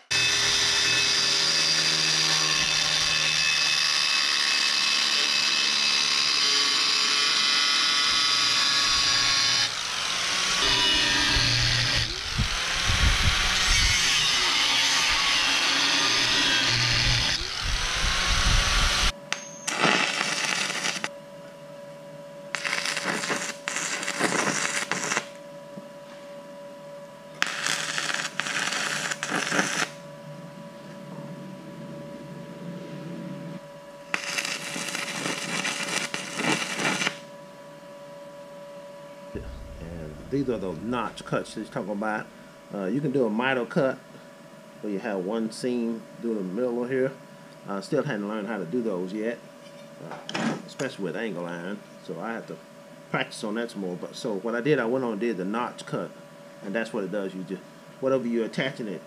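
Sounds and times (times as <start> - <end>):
angle grinder cutting steel: 0.0 - 19.1, 19.7 - 21.1, 22.6 - 25.3, 27.4 - 30.0, 34.1 - 37.2
steady hum: 6.1 - 54.4
welding arc crackling: 19.7 - 21.1, 22.5 - 25.4, 27.4 - 30.0, 34.1 - 37.2.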